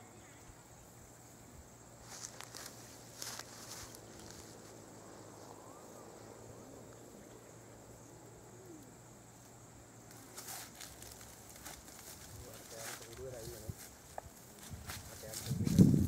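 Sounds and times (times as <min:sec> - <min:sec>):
high-pitched insect drone: 0:00.0 - 0:16.0.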